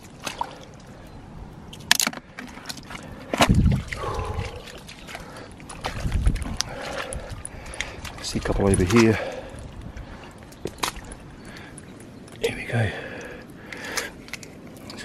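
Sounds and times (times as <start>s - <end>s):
boots squelching through mud: 2.5s - 11.3s.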